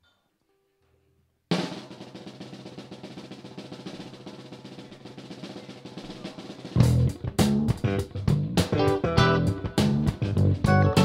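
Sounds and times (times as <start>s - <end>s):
snare drum roll: 1.5s - 7.8s
rock band playing: 4.9s - 11.0s.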